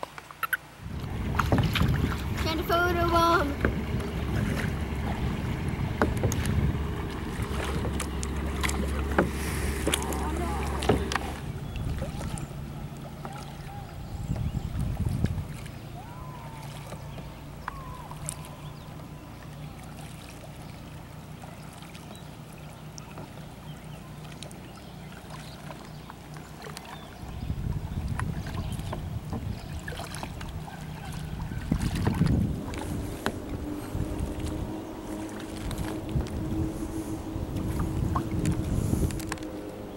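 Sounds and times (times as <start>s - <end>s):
paddle splashes and drips: 0.0s - 39.9s
wind buffeting microphone: 0.7s - 19.5s, 27.0s - 39.9s
low steady hum: 0.7s - 39.9s.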